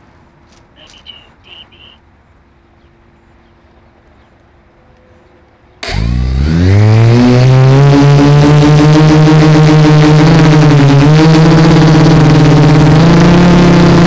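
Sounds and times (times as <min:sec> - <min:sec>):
drone motors whining: 0:05.8 - 0:13.0.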